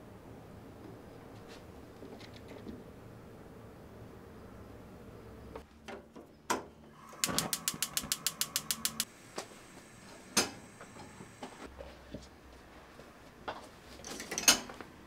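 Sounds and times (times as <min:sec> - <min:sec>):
faint steady gas hiss: 0:06.9 - 0:11.7
gas hob igniter clicking: 0:07.0 - 0:09.1, 0:10.3 - 0:11.6
single sharp click: 0:07.2 - 0:09.1.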